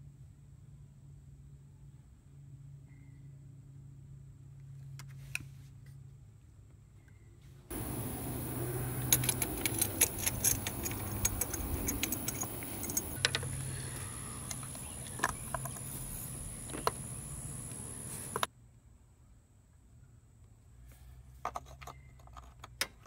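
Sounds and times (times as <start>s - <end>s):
steady hum and hiss: 0.0s - 21.7s
metal tools clicking and clinking: 7.8s - 13.6s.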